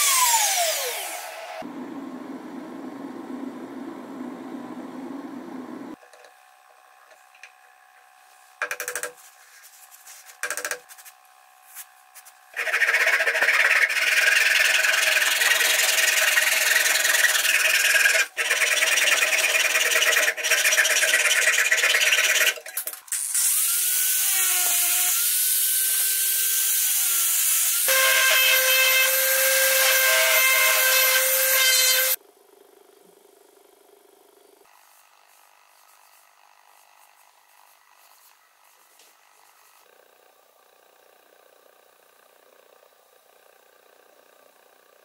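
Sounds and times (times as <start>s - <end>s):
power tool cutting wood: 0.0s - 1.7s, 12.5s - 32.2s
motor whine wavering in pitch: 0.0s - 6.0s.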